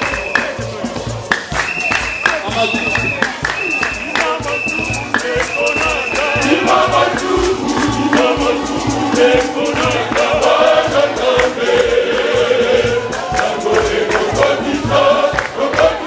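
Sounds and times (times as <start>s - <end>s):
hand claps: 0.0s - 12.4s, 13.0s - 16.0s
choir singing gospel: 3.2s - 16.0s.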